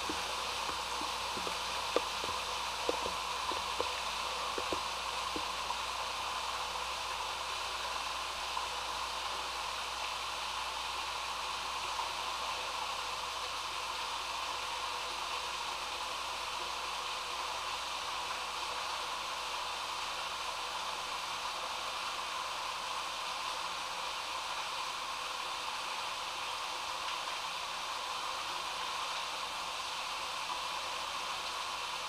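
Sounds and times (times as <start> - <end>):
water rushing in drain pipe: 0.0 - 8.9.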